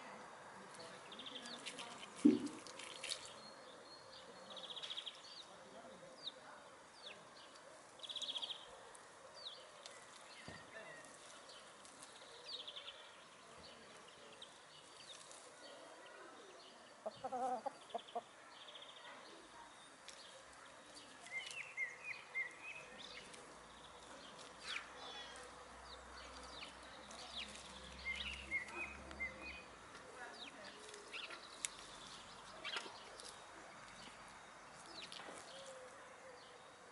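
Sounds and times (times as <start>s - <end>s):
hen clucking: 17.0s - 18.3s.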